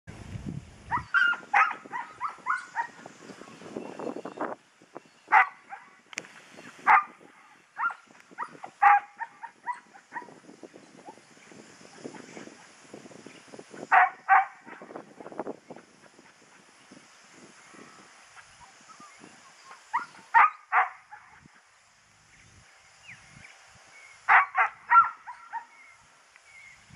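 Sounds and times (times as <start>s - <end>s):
dog barking: 0.9s - 3.0s, 5.3s - 6.0s, 6.9s - 7.1s, 7.8s - 10.3s, 13.9s - 14.8s, 20.0s - 21.4s, 24.3s - 25.7s.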